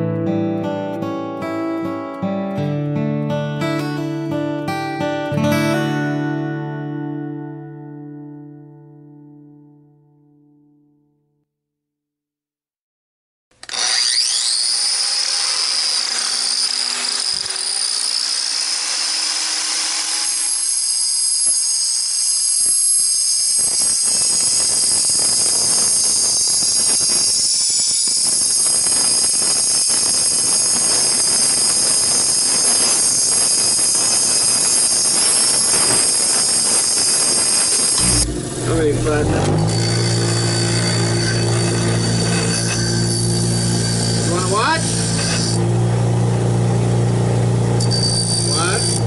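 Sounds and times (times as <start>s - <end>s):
angle grinder whining: 13.5s - 49.0s
grinding disc on steel: 13.6s - 49.0s.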